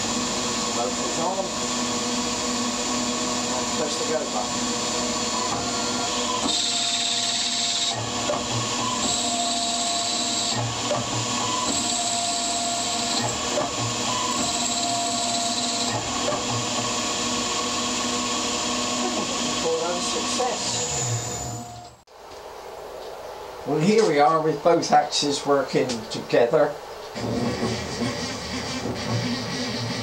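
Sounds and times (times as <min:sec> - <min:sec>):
lathe tool cutting hiss and whine: 0:00.0 - 0:22.0
metal lathe spindle running: 0:00.0 - 0:22.0, 0:27.2 - 0:30.0.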